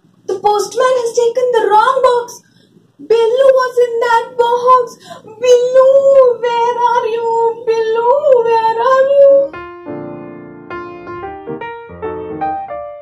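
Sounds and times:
piano tune: 0:08.3 - 0:13.0.

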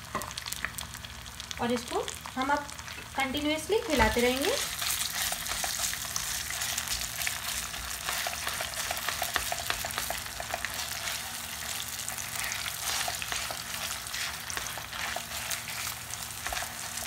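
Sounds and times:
food sizzling in a frying pan: 0:00.0 - 0:17.0
spatula stirring: 0:04.6 - 0:17.0.

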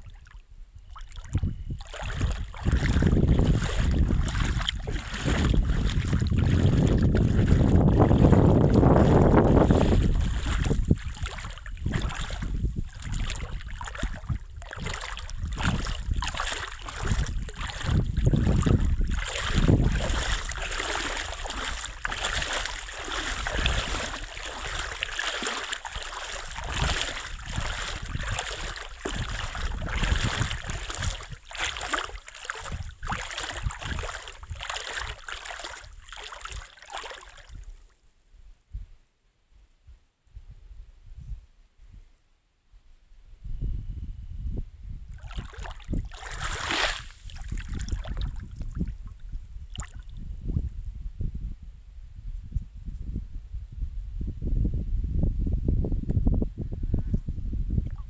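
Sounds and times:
small waves lapping shore: 0:00.0 - 0:08.3, 0:09.0 - 0:37.6, 0:45.2 - 0:48.4
wind buffeting microphone: 0:00.0 - 0:36.2, 0:40.3 - 0:42.1, 0:43.2 - 0:58.0
footsteps crunching on sand: 0:01.9 - 0:12.6, 0:14.9 - 0:36.4.

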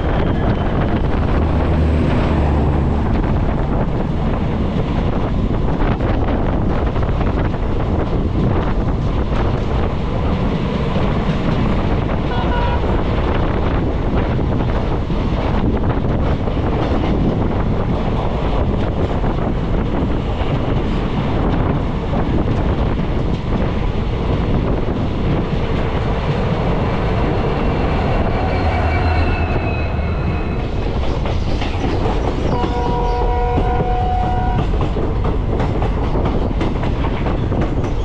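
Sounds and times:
diesel locomotive engine throb: 0:00.0 - 0:38.0
train coaches rattling past: 0:00.0 - 0:38.0
train horn: 0:12.3 - 0:13.0, 0:32.5 - 0:34.8.

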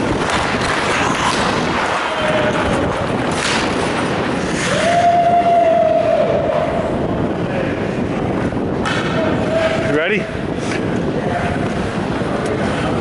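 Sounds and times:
skate stop scrapes: 0:00.0 - 0:05.5
skates carving on ice: 0:00.0 - 0:05.5, 0:10.5 - 0:13.0.

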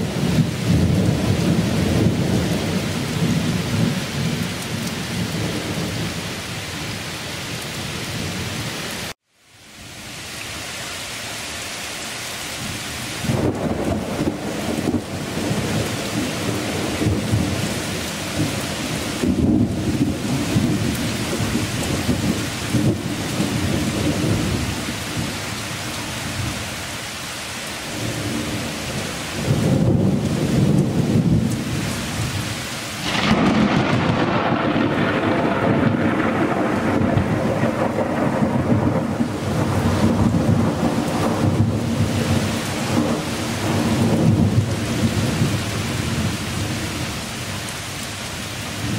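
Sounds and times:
thunder rumbling: 0:00.0 - 0:06.4, 0:13.2 - 0:25.4, 0:27.9 - 0:32.4, 0:33.0 - 0:47.2
heavy rain pouring: 0:00.0 - 0:48.9.

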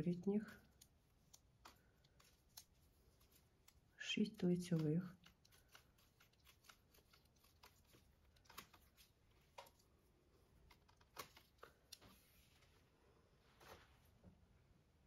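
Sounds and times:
knitting needles clicking: 0:00.0 - 0:09.9.

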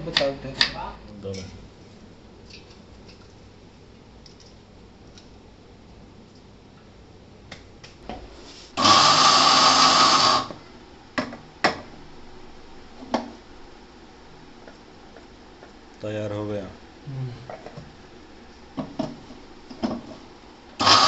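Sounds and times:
mixer grinder grinding seeds: 0:08.8 - 0:10.6, 0:20.8 - 0:21.0.

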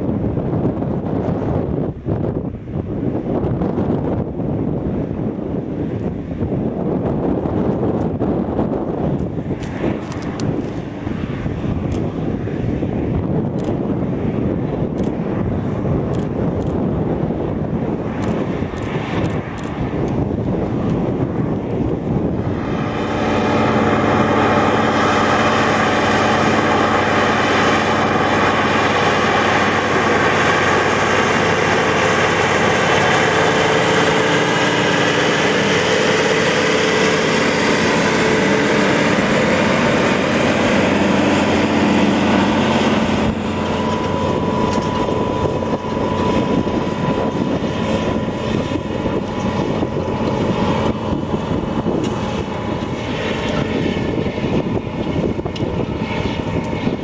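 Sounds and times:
tractor diesel engine under load: 0:17.4 - 0:57.0
thin steady whine: 0:17.5 - 0:57.0.

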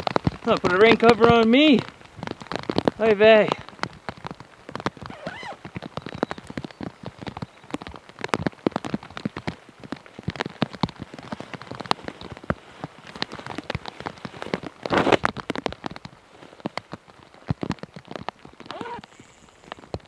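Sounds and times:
raindrops clicking: 0:00.0 - 0:20.0.

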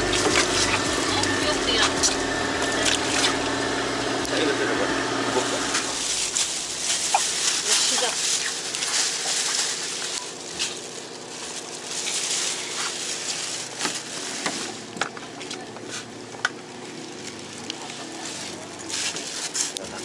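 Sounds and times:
faint steady hum: 0:00.0 - 0:20.0
plastic bags crinkling: 0:05.4 - 0:20.0.

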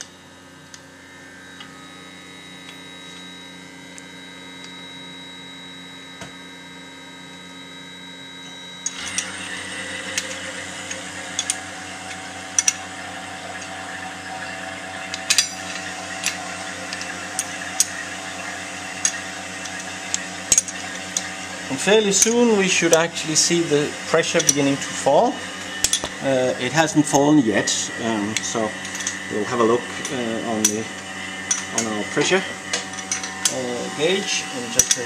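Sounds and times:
vacuum pump humming: 0:00.0 - 0:35.0
wrench clinking on metal: 0:20.5 - 0:20.8, 0:25.8 - 0:26.1, 0:28.8 - 0:29.2, 0:34.8 - 0:35.0.

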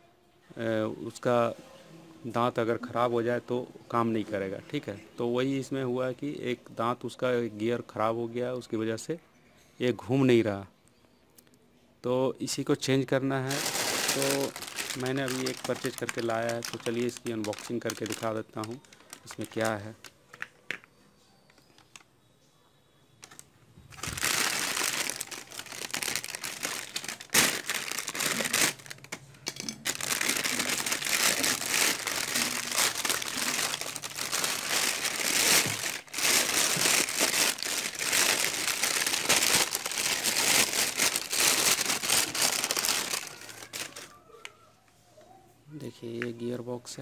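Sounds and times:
plastic bag crinkling: 0:13.4 - 0:20.8, 0:23.2 - 0:44.2.

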